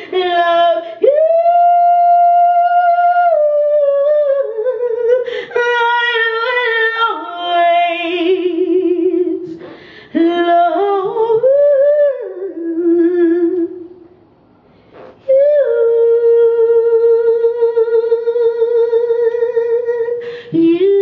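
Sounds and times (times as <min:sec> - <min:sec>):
woman singing: 0:00.0 - 0:14.0, 0:15.0 - 0:21.0
singer breaths: 0:09.5 - 0:10.2, 0:20.2 - 0:20.6.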